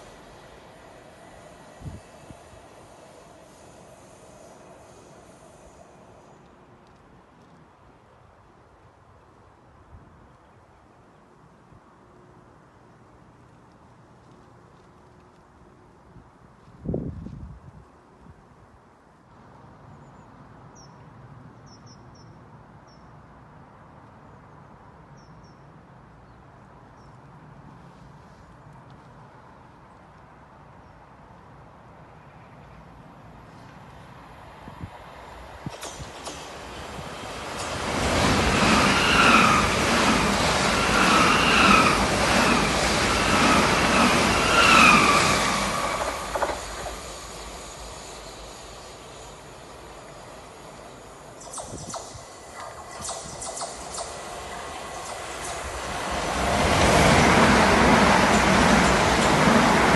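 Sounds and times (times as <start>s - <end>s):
wheels rumbling on rail: 0.0s - 8.0s, 33.2s - 59.9s
small bird chirping: 51.4s - 55.7s.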